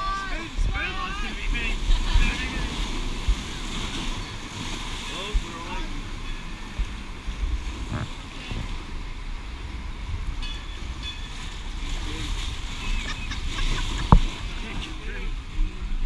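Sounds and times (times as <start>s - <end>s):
rushing white water: 0.0s - 16.0s
wind buffeting microphone: 0.0s - 16.0s
faint voices: 7.8s - 9.0s.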